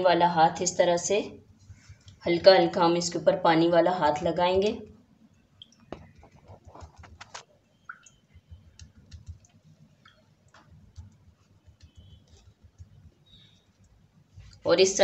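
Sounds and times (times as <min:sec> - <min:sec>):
hand patting water on dough: 0:05.6 - 0:14.5.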